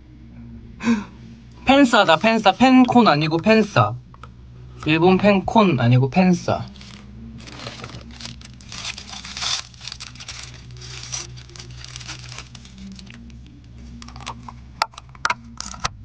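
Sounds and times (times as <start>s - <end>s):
plastic wrapper crinkling and tearing: 6.7s - 14.4s.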